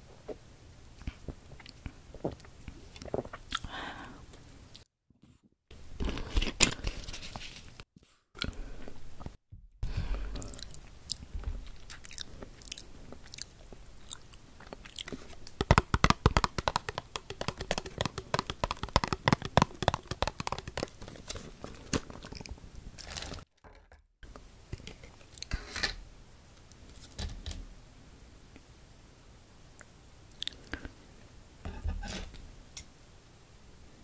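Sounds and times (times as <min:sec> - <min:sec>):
chewing: 0:10.4 - 0:15.6
plastic bottle cap twisting: 0:15.0 - 0:22.5.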